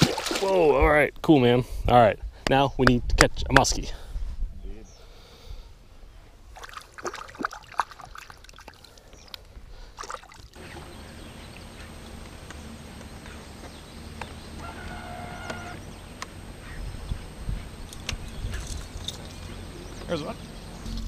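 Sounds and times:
water splashing and trickling: 0.0 - 0.8, 6.5 - 11.6.

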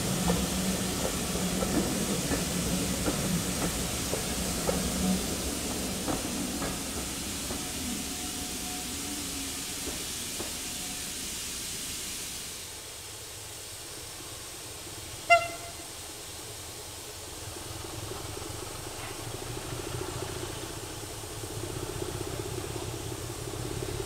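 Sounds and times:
locomotive steam hissing: 0.0 - 24.0
locomotive whistle toot: 15.2 - 16.0.

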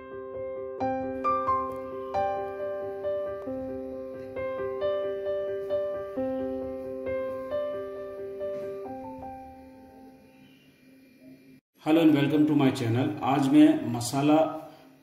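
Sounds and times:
slow piano melody: 0.0 - 11.6.

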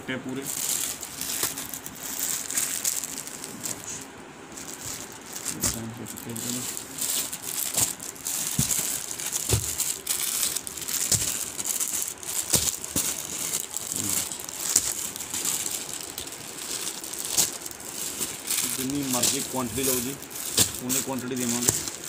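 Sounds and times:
plastic wrappers crinkling: 0.3 - 22.0
thumps: 6.6 - 15.8.

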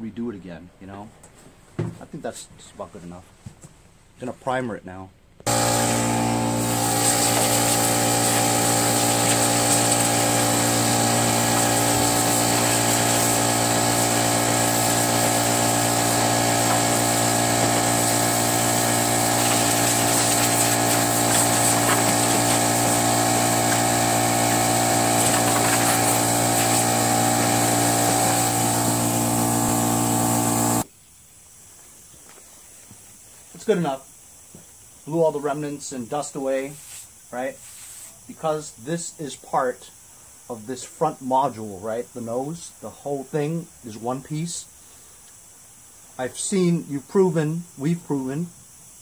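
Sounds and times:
compressed air hissing: 5.5 - 41.1, 42.1 - 49.0.

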